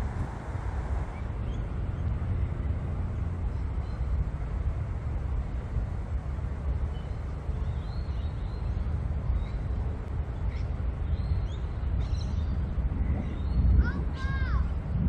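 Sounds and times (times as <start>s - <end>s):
low rumble: 0.0s - 6.9s, 12.4s - 15.0s.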